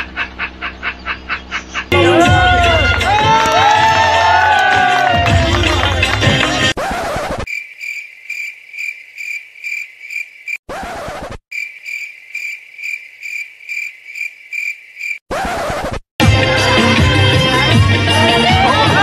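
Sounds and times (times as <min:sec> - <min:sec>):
cricket chirping: 0:07.5 - 0:10.6, 0:11.5 - 0:15.2.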